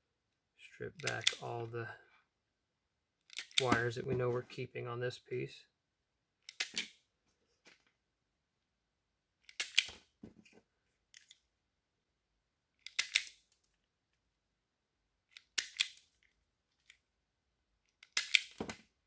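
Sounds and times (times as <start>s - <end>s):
wire strippers clicking and snapping: 1.0s - 1.5s, 3.3s - 3.9s, 17.9s - 18.8s.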